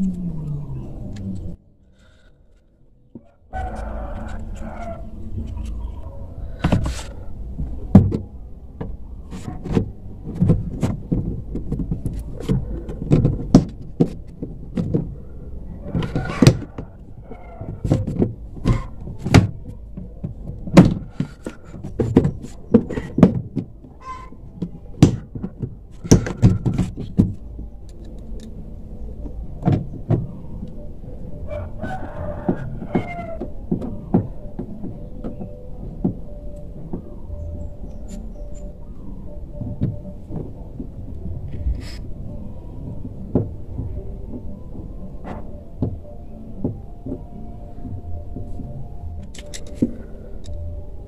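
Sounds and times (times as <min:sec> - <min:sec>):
plastic panel knocks and clacks: 0:07.9 - 0:15.2, 0:17.6 - 0:24.0, 0:24.6 - 0:27.7.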